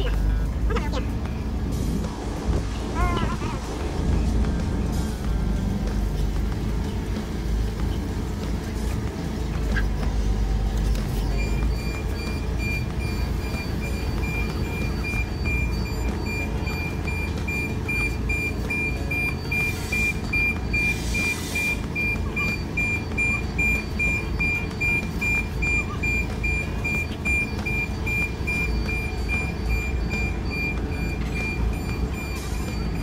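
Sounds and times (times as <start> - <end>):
diesel engine running: 0.0 - 33.0
reversing alarm beeps: 11.3 - 33.0.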